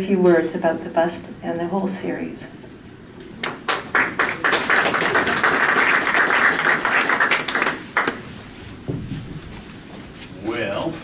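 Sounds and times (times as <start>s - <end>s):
audience applauding: 3.4s - 8.3s.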